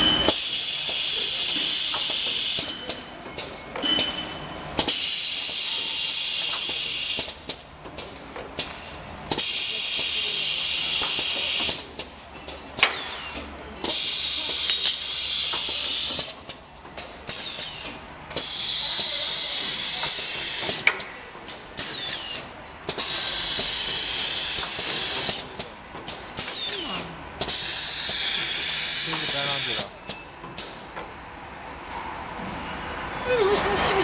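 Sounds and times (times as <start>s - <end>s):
compressed air hiss: 26.1s - 29.9s.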